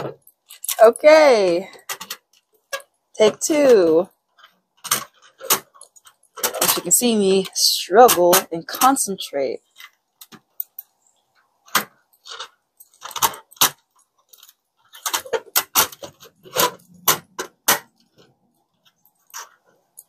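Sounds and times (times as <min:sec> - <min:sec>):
plastic parts clicking and clacking: 0:00.0 - 0:20.0.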